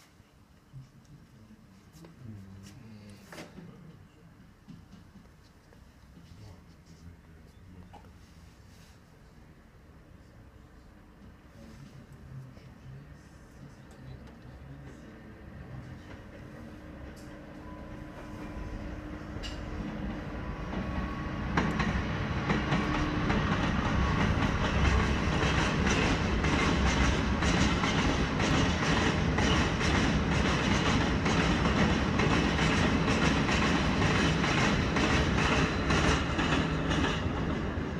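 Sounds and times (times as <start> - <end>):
freight train rolling past: 14.4 - 37.9.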